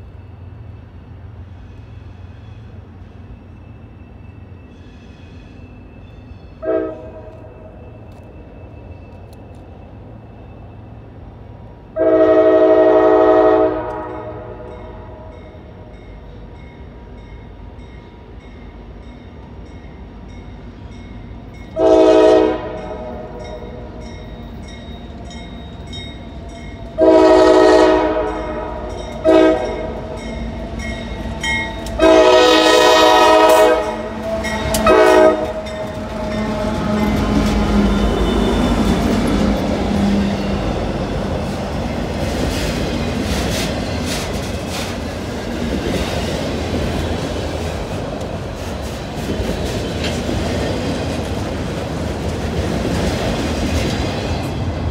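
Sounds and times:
train rumbling past: 0.0 - 54.9
locomotive air horn blasts: 6.6 - 7.5, 12.0 - 15.3, 21.8 - 23.5, 27.0 - 30.2, 31.9 - 39.0
wheels clattering on rails: 28.0 - 54.9.

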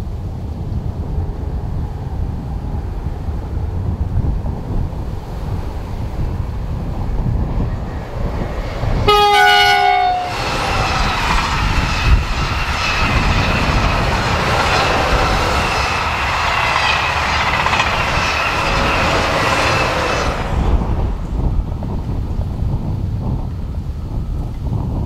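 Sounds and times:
wheel and rail noise: 0.0 - 25.0
wind buffeting microphone: 0.0 - 25.0
train horn: 9.0 - 11.2.

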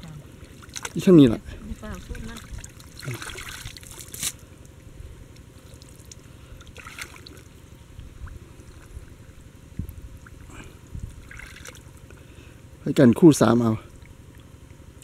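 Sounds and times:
short water splashes: 0.0 - 4.5, 5.5 - 12.1
muddy water sloshing: 0.0 - 12.7
steady low rumble: 0.0 - 15.0.

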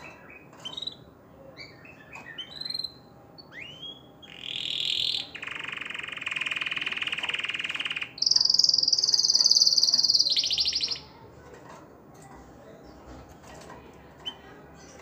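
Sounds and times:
bird chirp: 0.0 - 11.2
canary trilling: 0.2 - 11.3.

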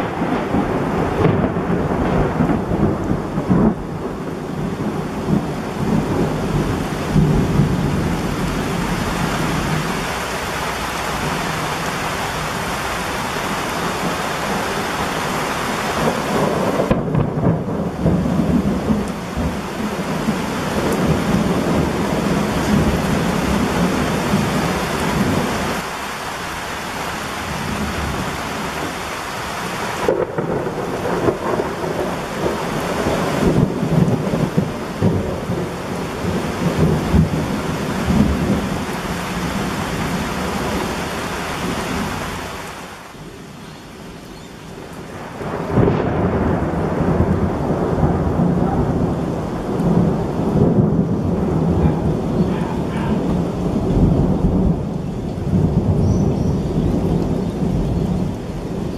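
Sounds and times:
thunder: 0.0 - 9.9, 14.0 - 25.6, 30.0 - 40.9, 45.1 - 58.9
heavy rain: 0.0 - 58.9.

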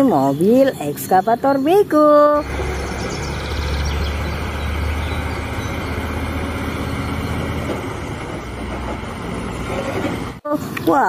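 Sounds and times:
tyre and road noise: 0.0 - 10.5
truck diesel engine rumbling: 0.0 - 11.0.

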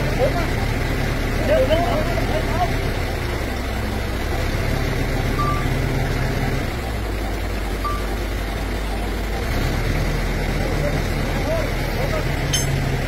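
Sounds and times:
heavy diesel truck engine running: 0.0 - 13.0
short faint beeps: 5.4 - 5.7, 7.8 - 8.1.

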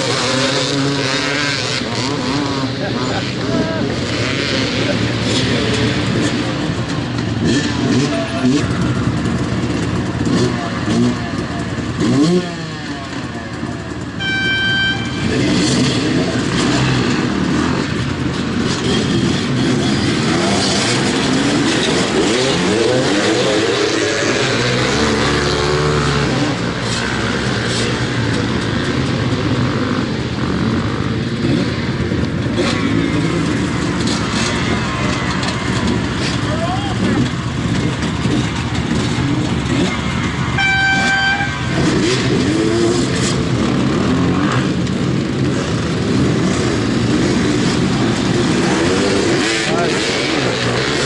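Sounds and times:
dirt bike engines revving: 0.0 - 51.0
horn blast: 14.2 - 15.9, 40.5 - 42.1.

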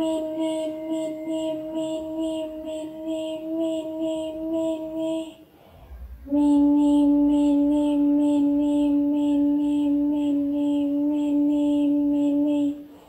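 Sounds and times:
high voice chanting: 0.0 - 13.0.

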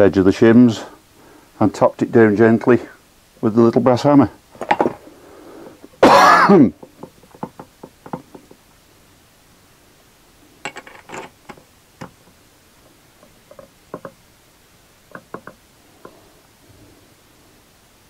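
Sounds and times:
metallic clicks and clinks: 10.6 - 12.2.

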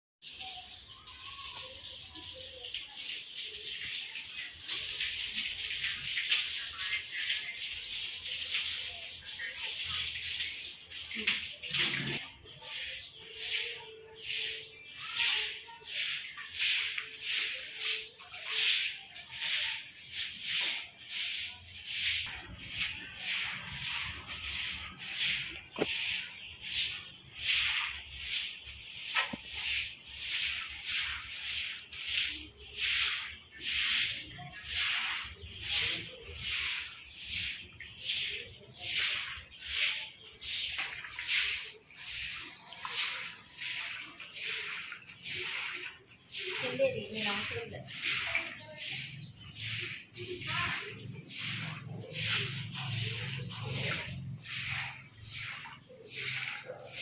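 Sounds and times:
broom scrubbing concrete: 0.2 - 57.0
water running from hose: 0.2 - 57.0.

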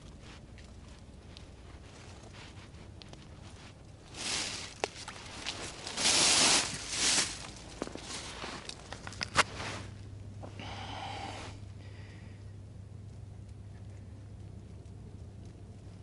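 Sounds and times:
rustling and scraping handling: 0.0 - 10.6.

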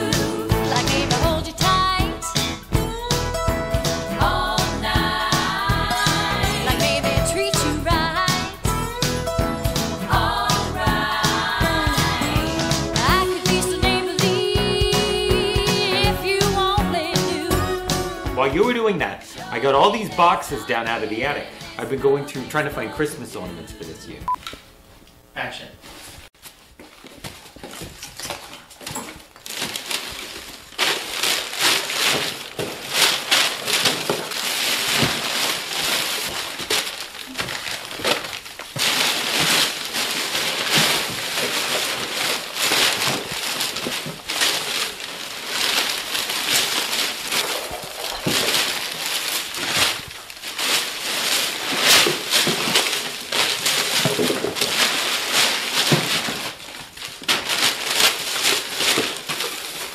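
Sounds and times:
paper rustling and crumpling: 25.9 - 59.9.

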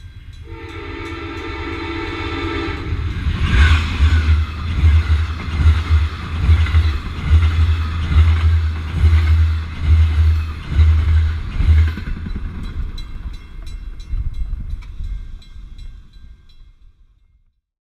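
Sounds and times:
crossing bell ringing: 0.0 - 3.6, 6.1 - 17.4
passenger train passing: 0.0 - 17.1.

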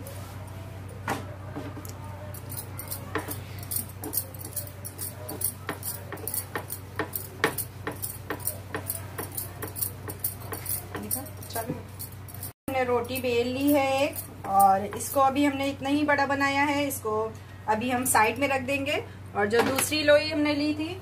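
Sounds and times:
metal bangles jangling: 2.3 - 14.7.

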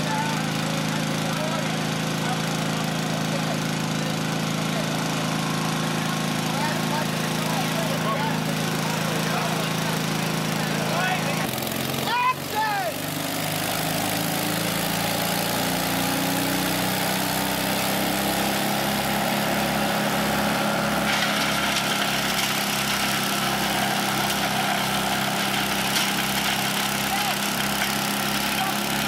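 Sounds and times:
wood chipper engine running: 0.0 - 29.0.

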